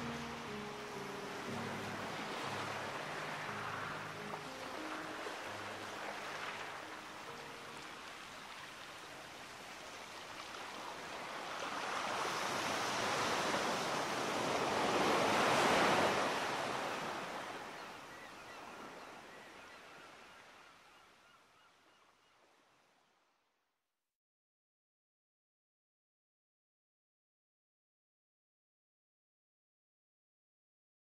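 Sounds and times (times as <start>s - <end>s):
rushing surf: 0.0s - 17.9s.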